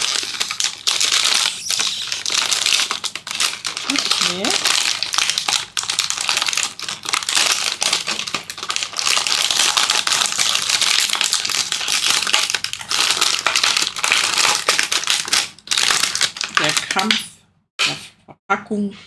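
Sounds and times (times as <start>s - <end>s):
plastic packet crinkling: 0.0s - 17.2s.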